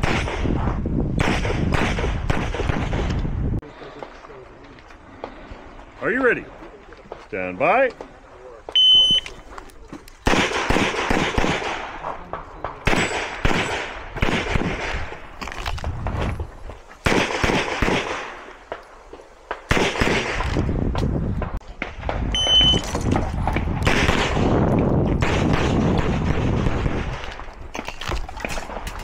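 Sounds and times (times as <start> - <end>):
short high beep: 8.8 - 9.3, 22.3 - 22.9.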